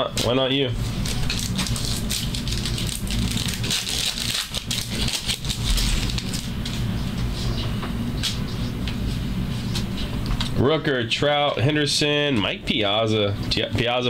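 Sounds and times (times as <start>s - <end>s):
wrappers crinkling and rustling: 0.2s - 6.8s.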